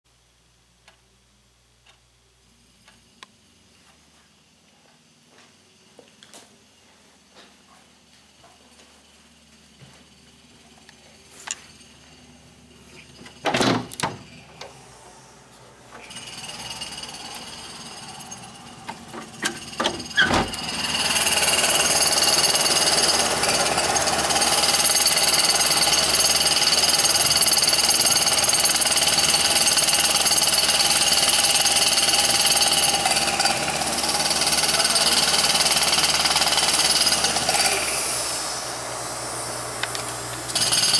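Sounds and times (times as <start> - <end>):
truck machinery whining and clattering: 11.4 - 40.9.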